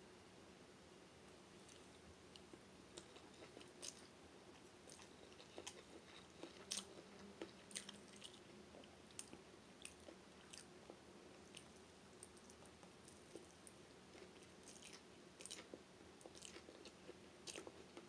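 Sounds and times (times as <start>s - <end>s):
mouth chewing sounds: 4.9s - 10.7s.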